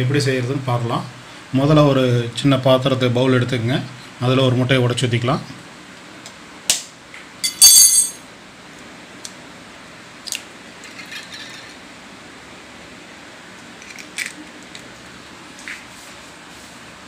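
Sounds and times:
metal spoon clinking: 7.4 - 8.2.

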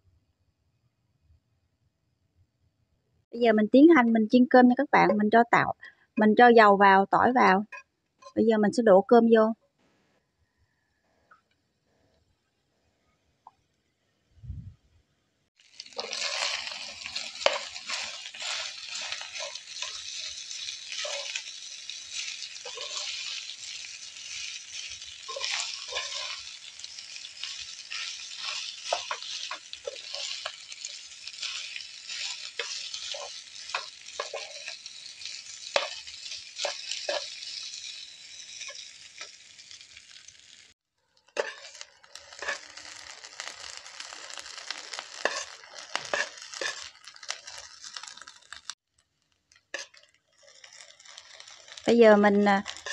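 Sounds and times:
rice sizzling in oil: 15.5 - 52.9
metal spatula scraping a pan: 15.8 - 40.3, 41.3 - 48.7, 49.7 - 51.8, 52.6 - 52.9.

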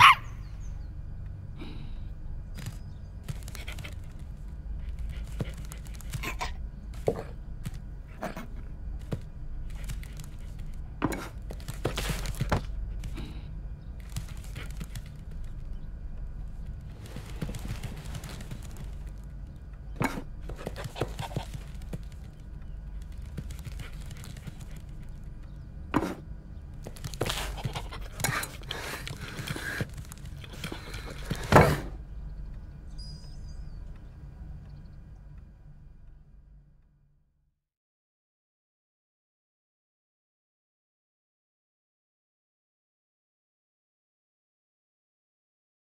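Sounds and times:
dog scampering over tiled floor: 2.5 - 13.3, 13.9 - 32.0
paws scraping under a cabinet: 2.6 - 13.3, 13.9 - 32.0.

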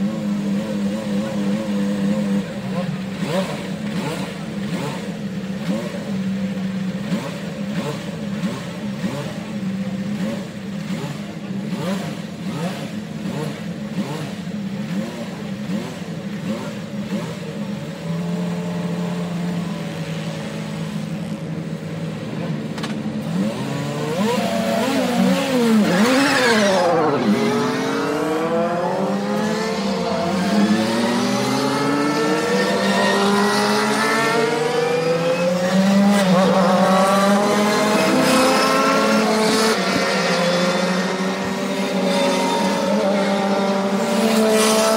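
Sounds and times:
race car engines: 0.0 - 44.9.

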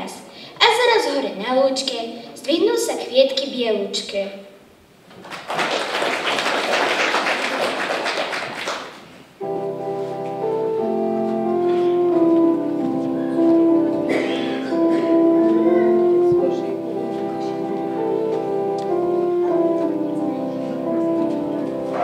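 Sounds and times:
audience clapping: 5.1 - 9.3
electronic keyboard chords and melody: 9.4 - 22.0.

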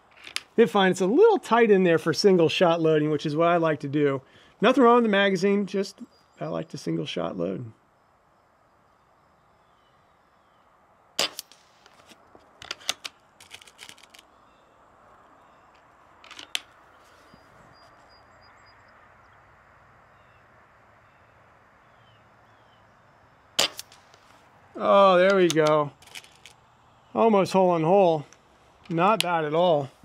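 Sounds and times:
small metallic clicks: 0.1 - 0.6, 11.2 - 14.3, 15.7 - 16.8, 23.6 - 24.4, 25.2 - 26.6
air rifle action clacking: 11.2 - 14.2, 15.8 - 16.7, 23.6 - 24.3, 25.2 - 26.6.

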